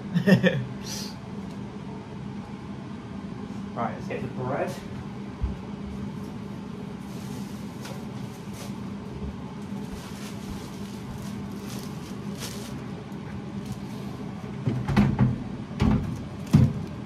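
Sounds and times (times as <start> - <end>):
steady low hum: 0.0 - 17.0
plastic bag rustling and clicking: 9.8 - 12.9.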